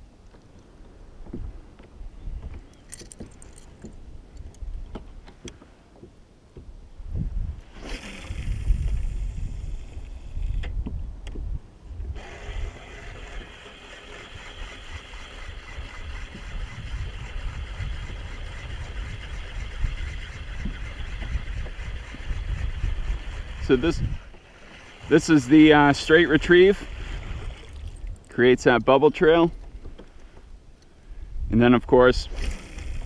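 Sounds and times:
wind rumbling on microphone: 0.0 - 5.6, 6.6 - 33.0
fishing reel whirring: 7.7 - 10.5, 12.2 - 28.1, 32.3 - 33.0.

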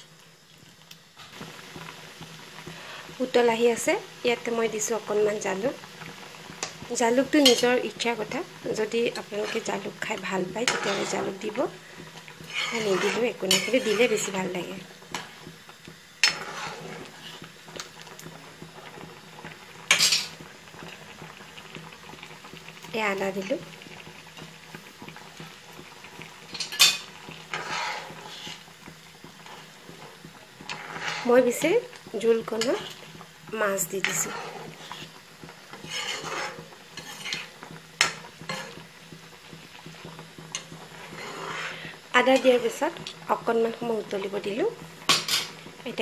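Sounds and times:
curry bubbling in a wok: 0.0 - 46.0
spoon stirring boiling liquid: 0.1 - 46.0
ladle swishing through liquid: 34.0 - 37.6, 40.9 - 42.8.

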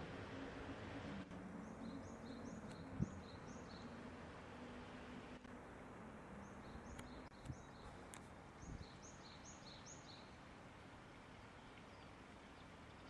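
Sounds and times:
faint clicks: 6.9 - 8.4.

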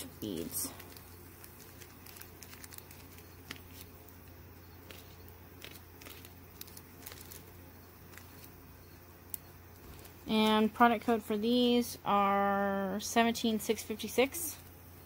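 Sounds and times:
plastic bags crinkling: 0.0 - 8.6
steady low hum: 0.0 - 15.0.

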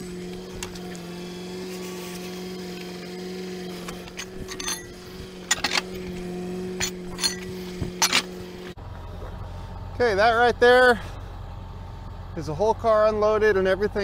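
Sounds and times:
steady low hum: 0.0 - 14.0
metal clanks of wheel dollies: 3.8 - 9.4.

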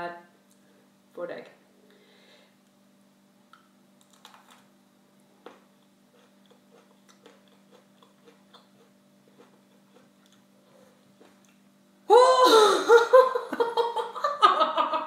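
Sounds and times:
faint crunchy chewing: 3.5 - 4.7, 5.4 - 11.7
chili pepper being bitten: 5.4 - 10.5.

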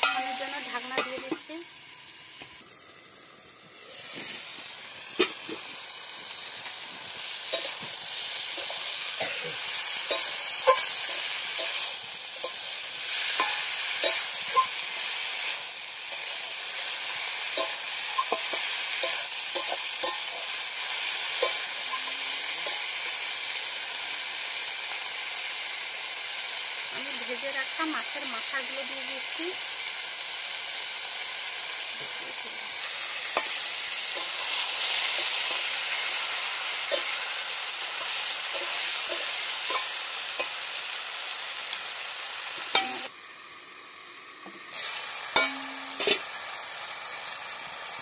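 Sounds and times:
vegetables sizzling in a wok: 0.0 - 48.0
metal spatula scraping a pan: 7.2 - 23.0, 32.3 - 40.7, 42.6 - 43.1, 44.8 - 46.4.

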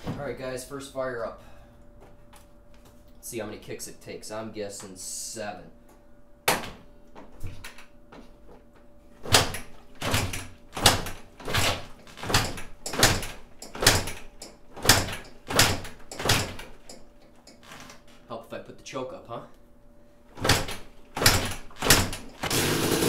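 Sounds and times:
motorcycle engine being kick-started: 20.6 - 23.0.

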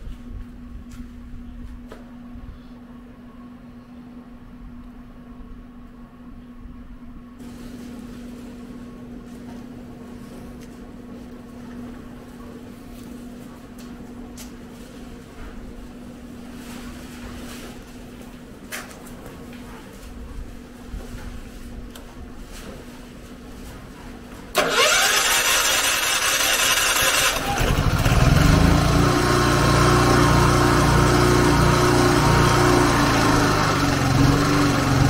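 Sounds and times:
generator humming: 24.6 - 35.0.

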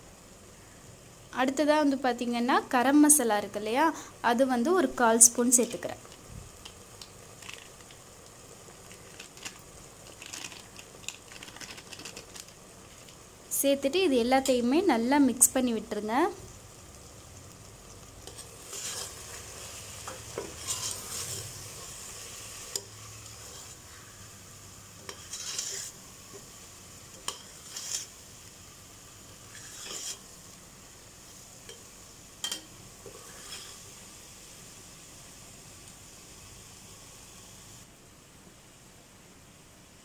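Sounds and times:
faint sizzle of frying: 0.0 - 40.0
metal ladle scraping pot: 18.2 - 19.4, 20.4 - 21.6, 23.4 - 23.8, 25.0 - 26.0, 27.2 - 28.1, 29.5 - 30.2.

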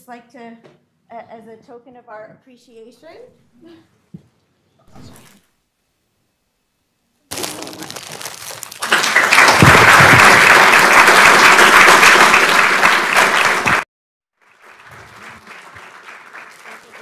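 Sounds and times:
audience applause: 7.3 - 13.8, 14.4 - 17.0.

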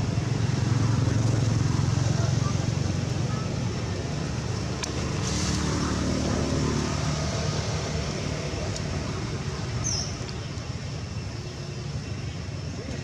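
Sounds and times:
vehicle engine passing: 0.0 - 10.2
low traffic rumble: 0.0 - 13.0.

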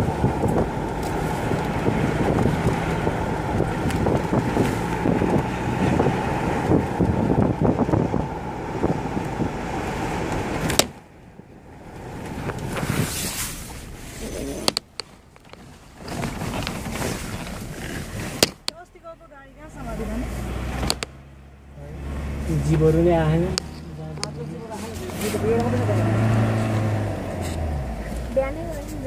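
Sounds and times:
road and engine noise: 0.0 - 29.0
knocks and rattles: 14.5 - 18.8, 20.8 - 21.2
sharp click: 20.8 - 21.1.

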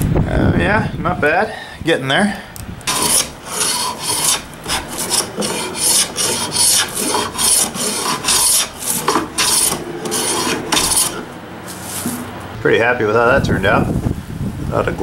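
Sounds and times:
hand plane scraping wood: 2.9 - 12.3.

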